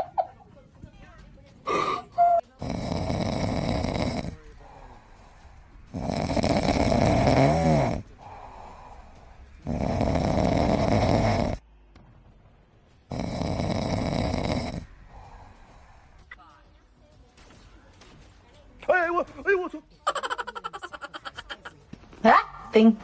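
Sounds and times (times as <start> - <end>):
quiet breaths: 0.4 - 11.6, 13.1 - 16.4
loud snores: 1.7 - 5.0, 5.9 - 11.6, 13.1 - 16.0.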